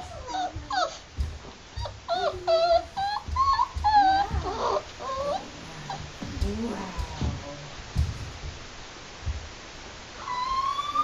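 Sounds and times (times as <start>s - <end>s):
puppy whining: 0.0s - 7.4s, 10.2s - 11.0s
soft low thumps: 0.0s - 10.0s.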